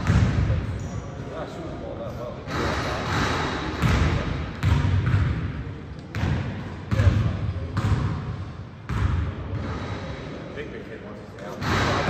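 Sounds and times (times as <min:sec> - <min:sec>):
basketball bouncing in a gym: 0:00.0 - 0:01.4, 0:02.4 - 0:10.2, 0:11.5 - 0:12.0.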